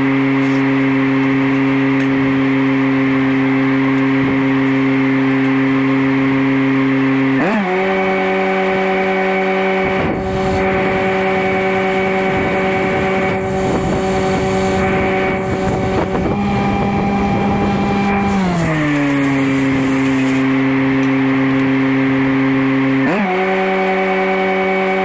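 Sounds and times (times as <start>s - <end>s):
welder engine running: 0.0s - 25.0s
welding arc crackling: 7.8s - 20.6s.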